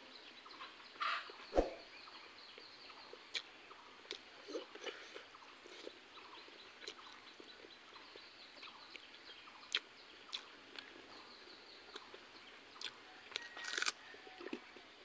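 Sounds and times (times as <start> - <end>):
chewing clicks: 6.8 - 7.2, 9.7 - 10.9, 12.8 - 14.6.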